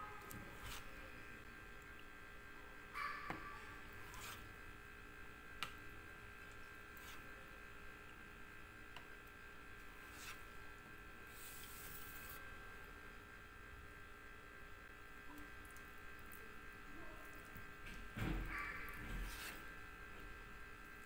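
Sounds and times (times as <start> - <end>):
faint steady hum: 0.0 - 21.0
knife scraping: 0.2 - 1.0, 4.0 - 4.5, 7.0 - 7.3, 10.0 - 10.5.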